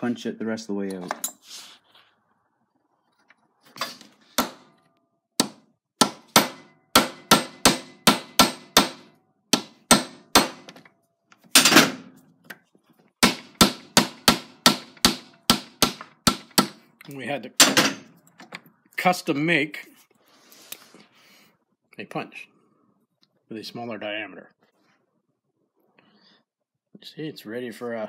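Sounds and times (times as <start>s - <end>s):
hammer striking pin punch: 4.4s - 4.7s, 5.4s - 10.9s, 13.2s - 16.8s.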